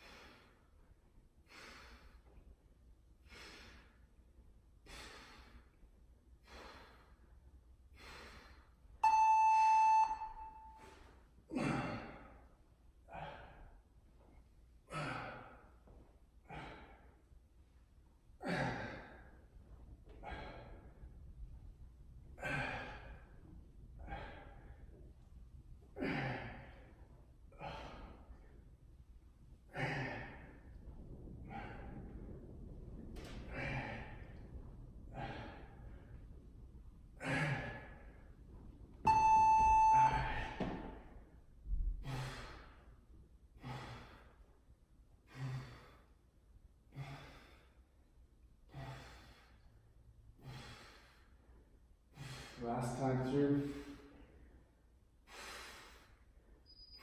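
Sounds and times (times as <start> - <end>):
man breathing hard: 0.0 - 2.5, 3.2 - 4.2, 4.8 - 8.9, 10.8 - 13.9, 14.8 - 17.4, 18.4 - 21.3, 22.4 - 25.0, 25.9 - 28.6, 33.5 - 36.3, 37.2 - 38.3, 41.9 - 42.9, 43.6 - 44.6, 45.2 - 48.0, 48.6 - 52.7, 53.6 - 56.6
interval timer beep: 9.0 - 10.8, 39.1 - 40.6.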